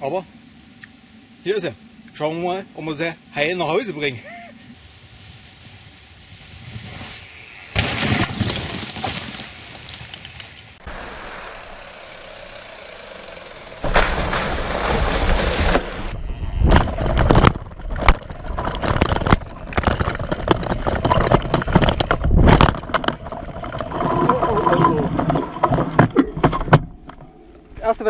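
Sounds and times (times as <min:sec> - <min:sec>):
wind rushing over camera: 0:14.3 - 0:27.0
bike knocking and rattling: 0:16.7 - 0:27.9
tyres rolling on loose ground: 0:16.8 - 0:28.0.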